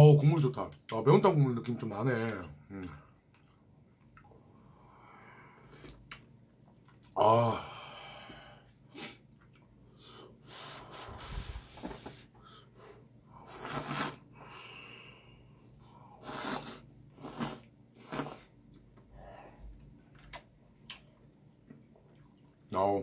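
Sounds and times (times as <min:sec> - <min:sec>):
person breathing: 0:04.6 - 0:06.0, 0:07.4 - 0:09.2, 0:09.9 - 0:13.1, 0:14.3 - 0:16.3, 0:19.1 - 0:19.8
noodles being slurped: 0:13.5 - 0:14.3, 0:16.2 - 0:18.6.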